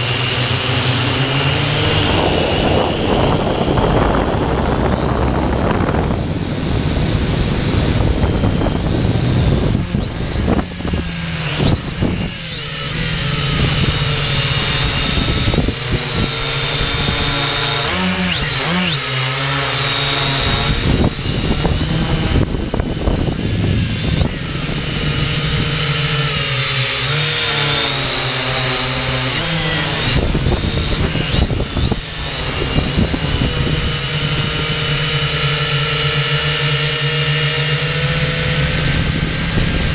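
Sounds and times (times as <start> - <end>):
wind rushing over microphone: 0.0 - 36.5, 37.5 - 39.9
drone propellers whining: 0.0 - 39.9.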